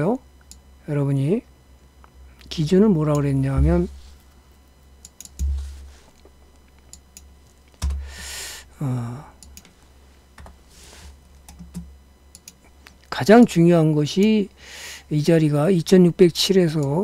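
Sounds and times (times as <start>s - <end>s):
low thuds: 3.5s - 4.1s
keyboard typing clicks: 5.0s - 5.6s, 6.8s - 8.0s, 9.4s - 9.7s, 11.4s - 12.6s
person breathing: 7.9s - 9.4s, 10.6s - 11.2s, 14.6s - 15.1s
person humming: 8.8s - 9.4s.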